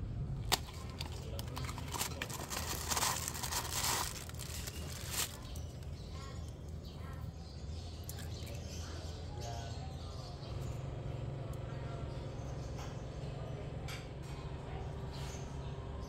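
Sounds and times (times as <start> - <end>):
rustling and crinkling packaging: 0.4 - 6.8.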